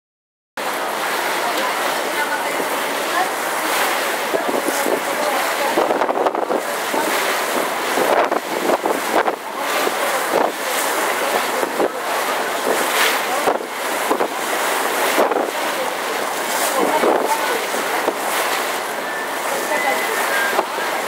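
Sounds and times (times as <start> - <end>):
seawater rushing and splashing: 0.6 - 21.0
wind buffeting microphone: 2.4 - 18.8.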